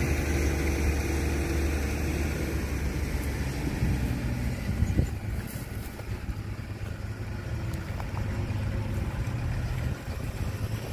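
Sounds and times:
excavator diesel engine rumbling: 0.0 - 10.9.

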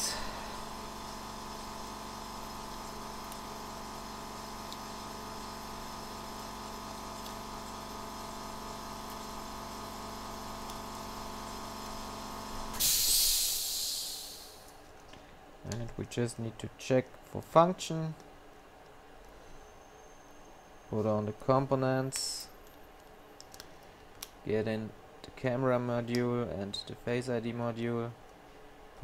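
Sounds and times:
steady machine hum: 0.0 - 29.0
loud burst of hiss: 12.7 - 14.7.

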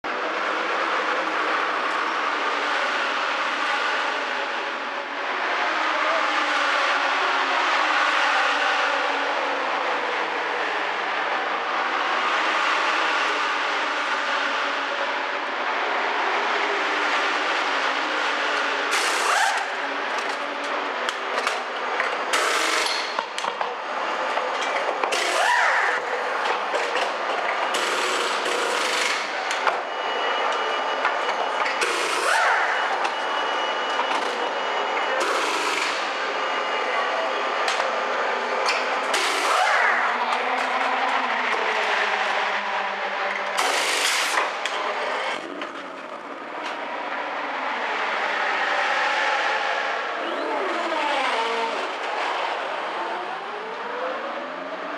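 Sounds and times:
pneumatic wheel guns bursts: 18.9 - 19.7, 43.6 - 44.5.

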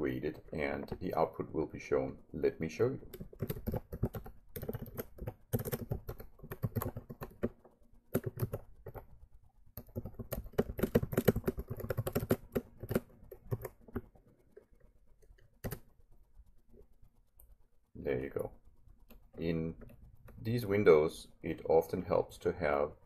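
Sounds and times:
typing on computer keyboard: 3.0 - 9.2, 9.8 - 15.9.

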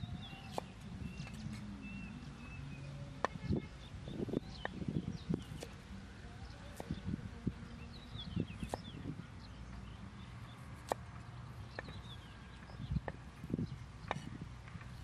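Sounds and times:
knife chopping on wooden board: 10.8 - 11.1.

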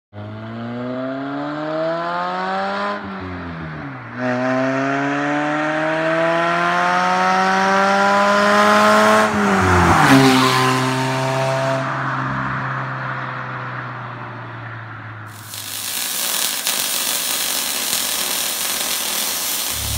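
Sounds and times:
car engine revving: 19.6 - 19.9.

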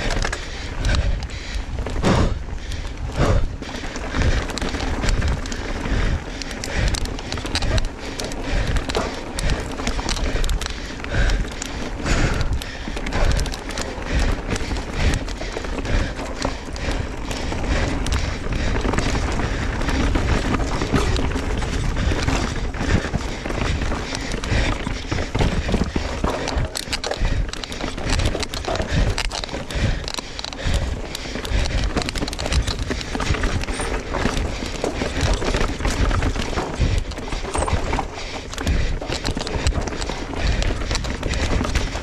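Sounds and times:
bike clattering over rocks: 0.0 - 42.0
wind on microphone: 0.8 - 3.6.

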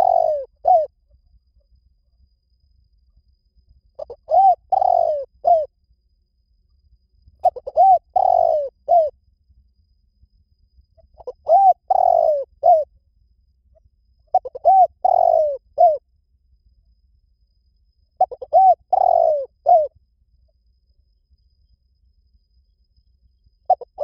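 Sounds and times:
dove cooing: 0.0 - 1.0, 4.0 - 5.7, 7.4 - 9.2, 11.0 - 12.9, 14.3 - 16.0, 18.2 - 19.9, 23.7 - 24.0.

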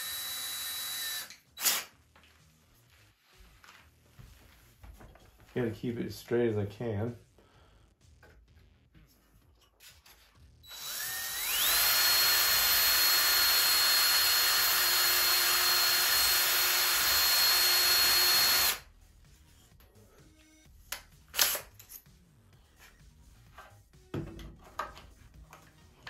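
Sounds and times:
cordless drill whining: 0.0 - 1.9, 10.6 - 18.8.

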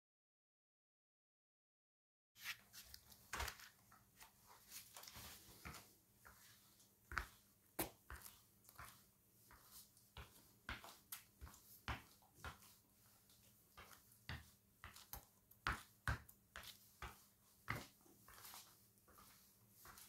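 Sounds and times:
footsteps on hard floor: 3.3 - 20.0.

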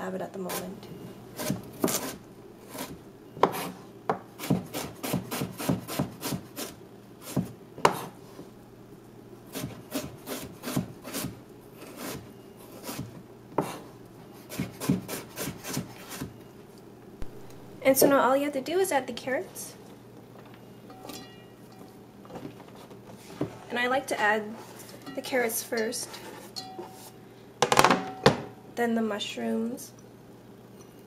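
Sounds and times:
knife chopping on plastic board: 1.4 - 6.7, 7.3 - 8.2, 14.5 - 16.3.

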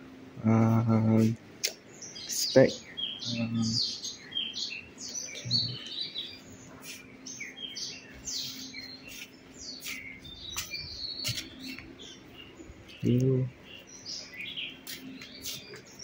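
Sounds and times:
small birds chirping: 0.4 - 16.0.

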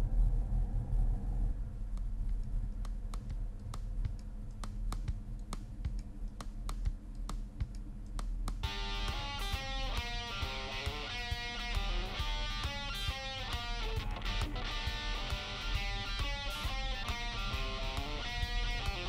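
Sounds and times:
sharp clicks: 1.9 - 13.2.

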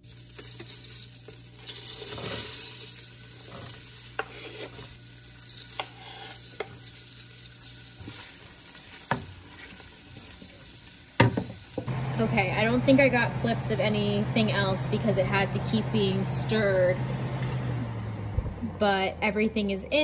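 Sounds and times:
vegetables sizzling in butter: 0.0 - 11.9.

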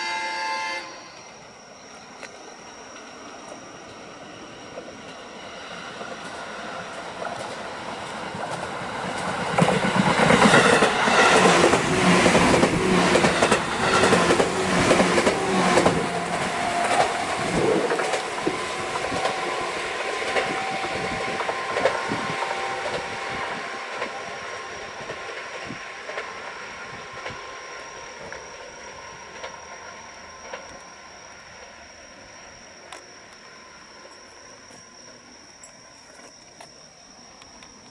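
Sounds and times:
train wheels clattering over rail joints: 6.0 - 23.2.

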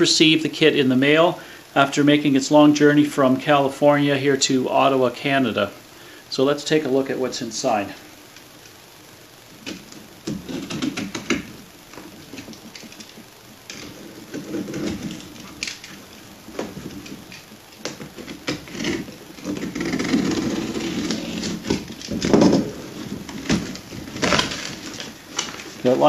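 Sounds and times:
blade scraping through packing tape: 18.2 - 22.1, 23.5 - 25.6.

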